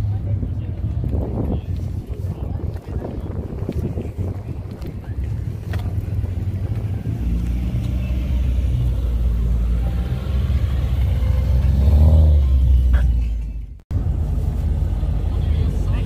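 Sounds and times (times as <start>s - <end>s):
engine revving: 5.8s - 13.1s.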